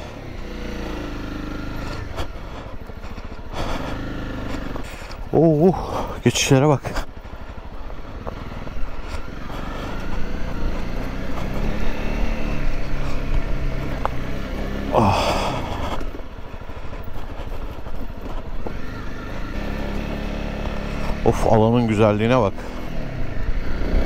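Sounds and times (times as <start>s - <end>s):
motorcycle engine on dirt trail: 0.0s - 24.0s.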